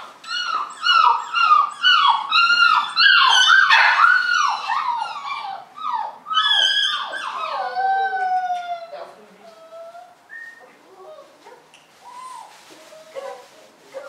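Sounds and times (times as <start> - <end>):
puppy yelping whines: 0.0 - 11.3.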